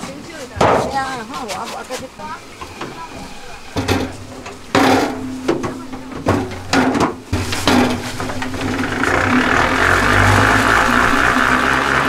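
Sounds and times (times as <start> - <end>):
wooden frames knocking on metal cage: 0.6 - 1.2, 2.8 - 10.1
electric motor whirring: 8.3 - 12.0.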